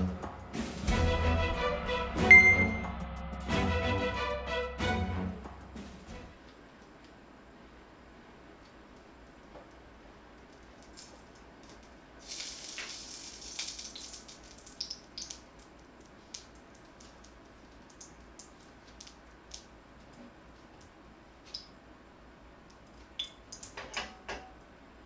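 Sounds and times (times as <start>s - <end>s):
fat crackling and popping: 8.6s - 21.7s
lard sizzling in hot wok: 10.9s - 17.3s.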